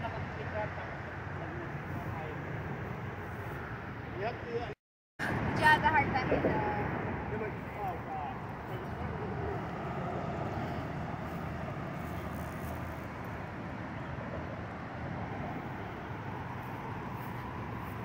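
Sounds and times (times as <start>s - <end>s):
wind buffeting microphone: 1.2s - 18.0s
bike tyre and road rumble: 5.6s - 18.0s.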